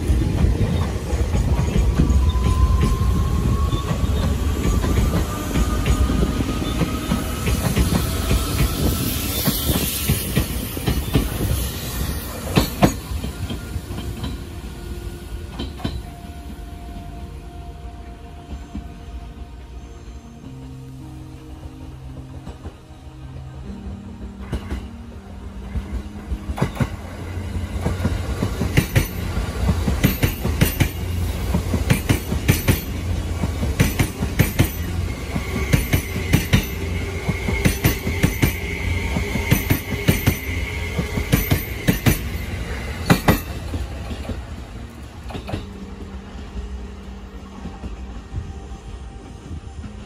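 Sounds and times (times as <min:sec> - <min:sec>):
train wheels clicking over rail joints: 0:00.0 - 0:14.5, 0:25.7 - 0:46.8
train rumble: 0:00.0 - 0:50.0.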